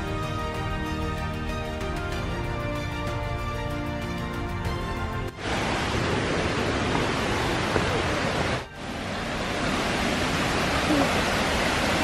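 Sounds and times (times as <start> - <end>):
waterfall rushing water: 5.3 - 12.0.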